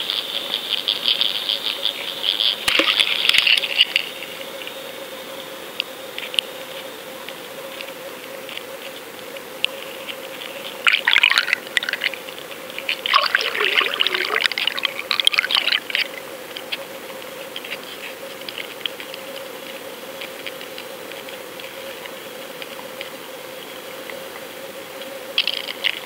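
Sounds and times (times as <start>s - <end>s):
crackling fizz: 0.0s - 4.8s, 10.1s - 19.5s, 25.0s - 26.0s
faint ticks: 5.4s - 10.8s, 14.4s - 23.2s, 24.0s - 26.0s
steady hum: 9.0s - 25.2s
underwater bubbling water: 10.9s - 12.2s, 12.9s - 16.2s.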